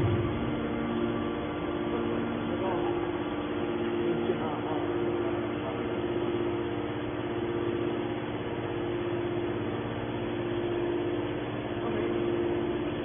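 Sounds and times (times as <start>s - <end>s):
hydraulic power unit humming: 0.0s - 13.0s.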